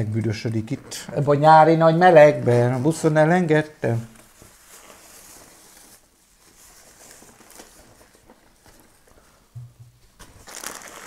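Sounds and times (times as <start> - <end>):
groceries rustling and knocking: 4.0 - 11.0.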